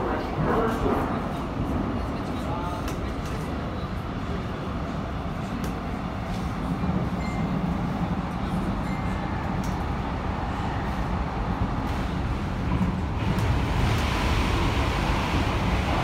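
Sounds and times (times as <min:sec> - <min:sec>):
train wheels rumbling on track: 0:00.0 - 0:16.0.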